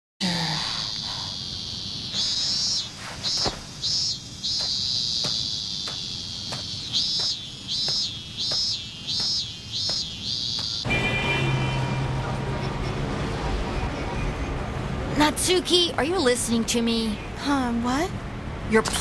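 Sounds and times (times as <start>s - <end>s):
cicadas buzzing: 0.2s - 10.9s.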